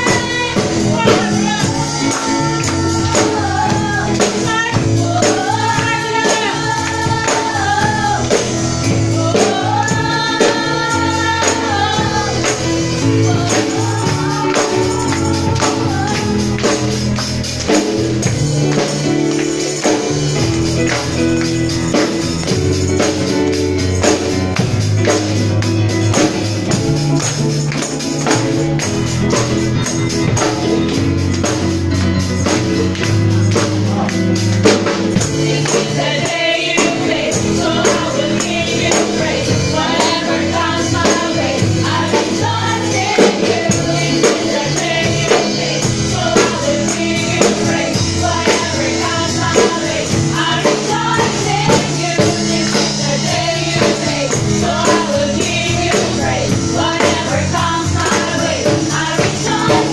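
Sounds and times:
gospel singing: 0.0s - 59.9s.

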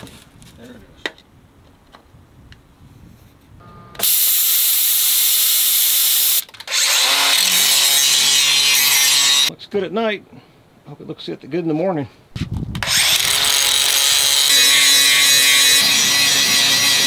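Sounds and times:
plasma cutter hissing: 4.0s - 6.4s
angle grinder grinding steel: 4.0s - 9.5s, 12.8s - 17.0s.

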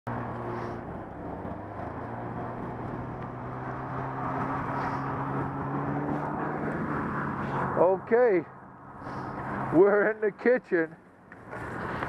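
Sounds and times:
wind rushing: 0.8s - 7.8s.

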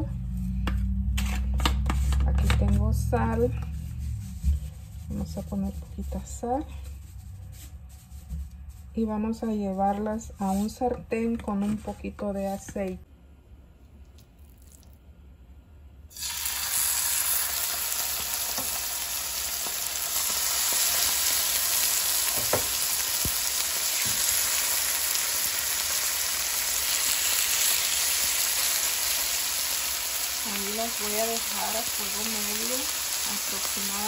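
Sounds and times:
meat sizzling in hot oil: 16.1s - 34.0s.

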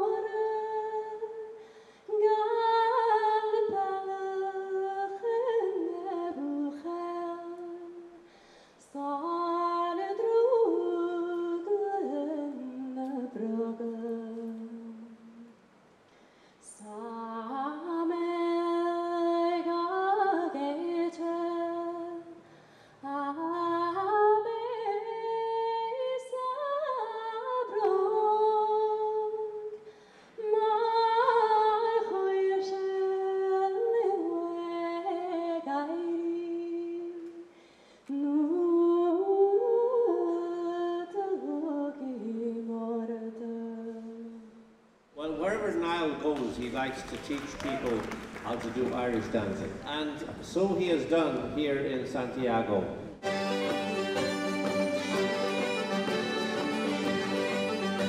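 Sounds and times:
woman singing unaccompanied: 0.0s - 8.2s, 8.8s - 15.6s, 16.7s - 22.4s, 23.0s - 29.8s, 30.4s - 37.5s, 38.1s - 44.7s.

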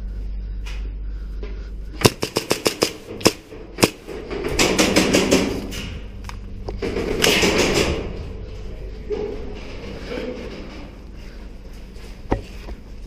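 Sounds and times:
airsoft rifle shots: 2.0s - 5.6s, 7.1s - 8.0s.

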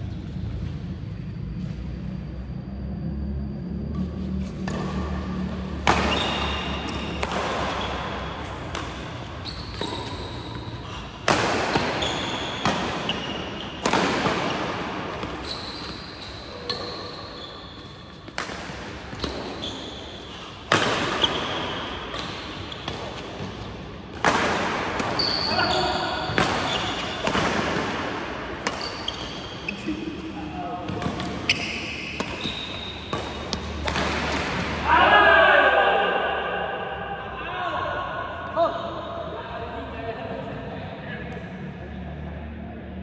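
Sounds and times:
shoe squeaks on court: 4.0s - 11.0s, 11.7s - 18.3s, 19.1s - 23.4s, 25.0s - 27.4s, 28.6s - 33.9s
racket hitting shuttlecock: 4.0s - 29.8s, 30.8s - 34.9s.

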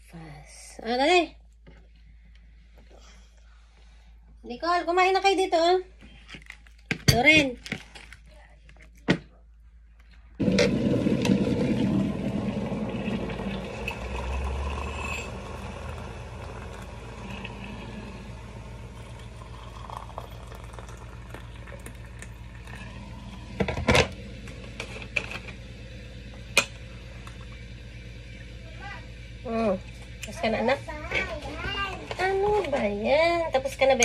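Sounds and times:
hot water pouring into mugs: 10.4s - 30.8s.

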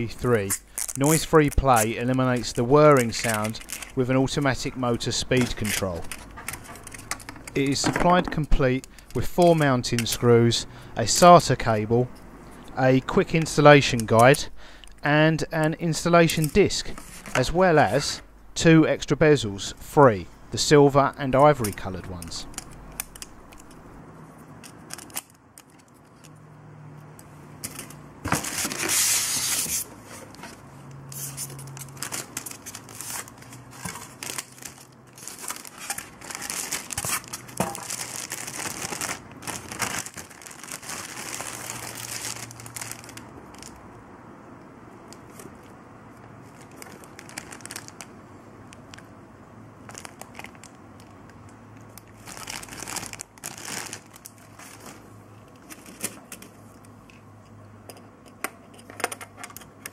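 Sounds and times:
plastic bag crinkling: 0.4s - 4.6s, 31.2s - 43.8s, 46.4s - 48.1s, 49.8s - 51.2s, 52.0s - 55.1s.

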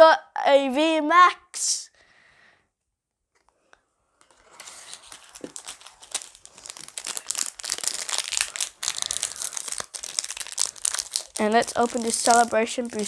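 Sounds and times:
foil wrapper crinkling: 4.2s - 13.0s.

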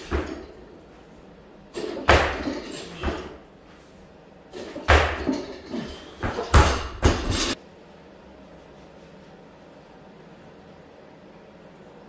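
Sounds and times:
barbell thuds and clanks: 1.7s - 3.4s, 4.5s - 7.6s.

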